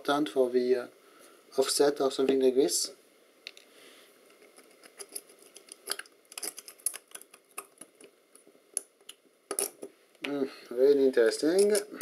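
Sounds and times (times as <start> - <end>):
metal parts clicking in hand: 4.6 - 8.1, 11.5 - 12.0.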